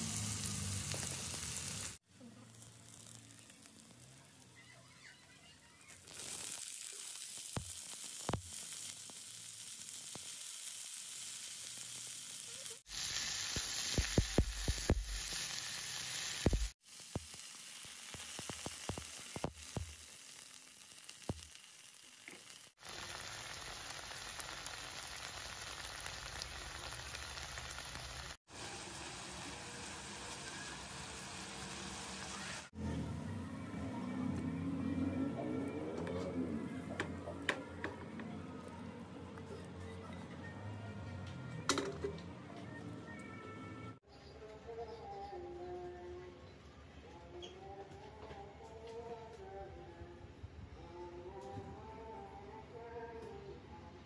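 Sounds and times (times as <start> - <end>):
stir-fry sizzling in a wok: 0.0 - 32.8.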